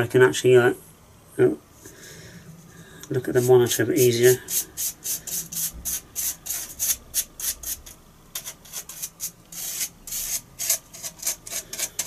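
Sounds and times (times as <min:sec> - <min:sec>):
glue brush scratchy rubbing: 0:03.4 - 0:12.0.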